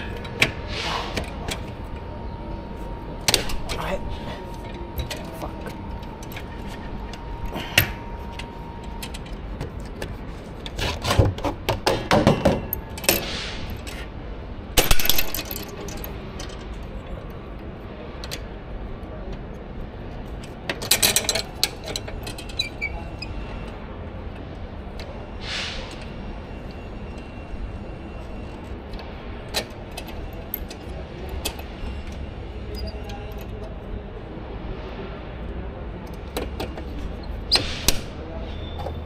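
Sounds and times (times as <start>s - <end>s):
steady beep-like tone: 1.4s - 9.6s, 26.2s - 28.9s
metal tools clattering: 3.3s - 11.1s, 14.8s - 16.8s.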